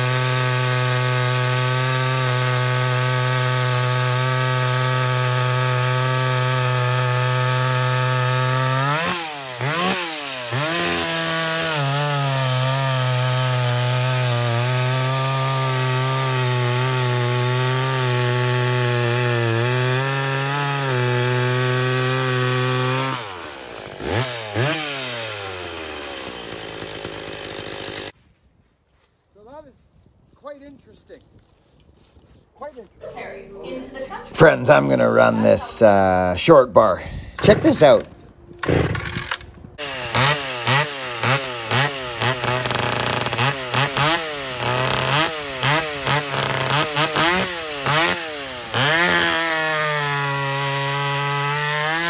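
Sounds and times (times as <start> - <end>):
chainsaw cutting through log: 0.0 - 28.2, 38.6 - 52.0.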